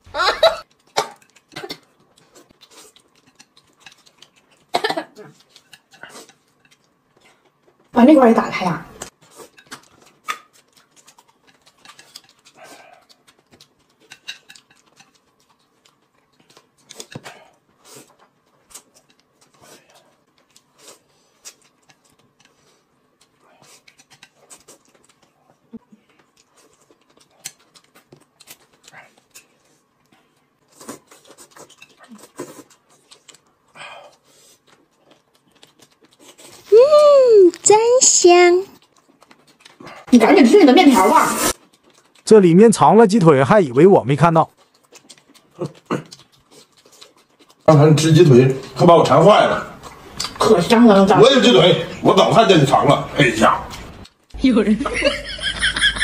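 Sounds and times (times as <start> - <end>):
noodles being chewed: 0.6 - 8.0, 9.0 - 40.1, 41.0 - 43.4, 44.1 - 51.8, 52.4 - 54.4.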